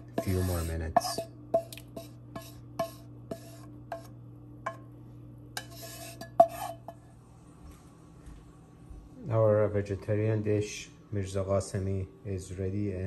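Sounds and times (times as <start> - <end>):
spatula knocking on pan rim: 0.0 - 4.1, 5.6 - 7.0
wooden spatula scraping frying pan: 0.0 - 4.1, 5.6 - 7.0.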